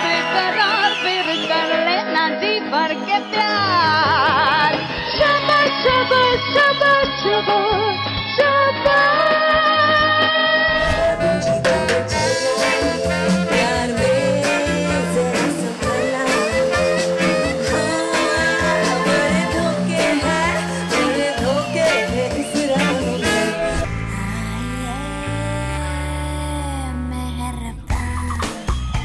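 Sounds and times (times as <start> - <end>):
electric bass guitar: 3.8 - 29.0
woman singing jazzy swing: 12.6 - 28.4.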